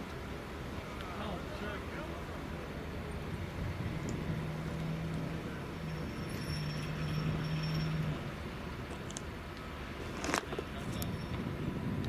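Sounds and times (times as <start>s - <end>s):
vehicle engine humming: 0.0s - 12.0s
faint high whine: 0.7s - 8.6s, 10.7s - 11.7s.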